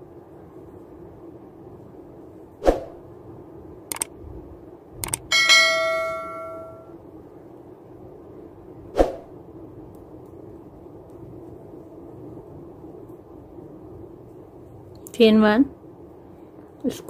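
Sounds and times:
mouse clicks: 3.9s - 4.1s, 5.0s - 5.2s
notification bell ding: 5.3s - 6.9s.

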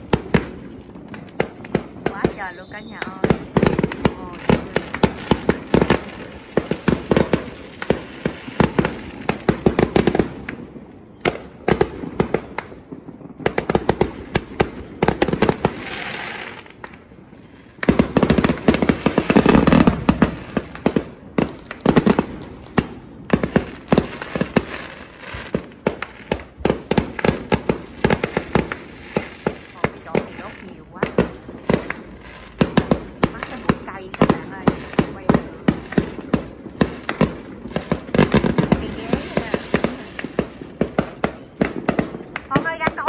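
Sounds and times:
fireworks bangs and crackles: 0.0s - 43.0s
fireworks hissing: 15.3s - 43.0s.

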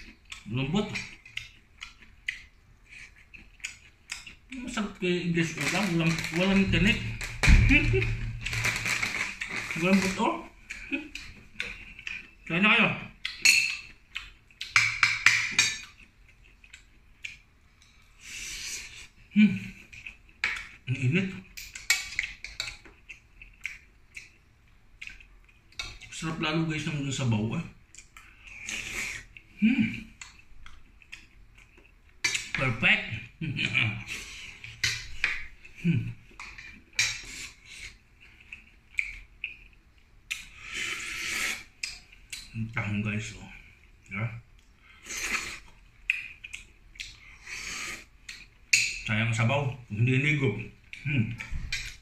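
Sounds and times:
shellfish shells cracking: 5.5s - 10.2s.

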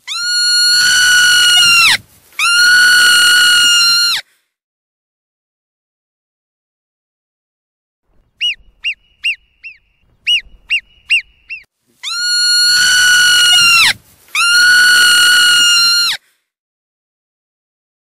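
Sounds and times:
marmot chirping and whistling: 8.4s - 14.7s.

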